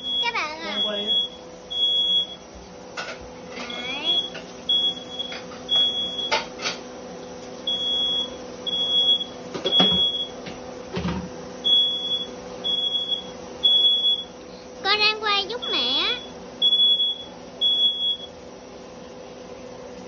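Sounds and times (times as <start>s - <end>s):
smoke alarm beeping: 0.0s - 2.5s, 3.7s - 6.5s, 7.6s - 10.4s, 11.6s - 18.4s.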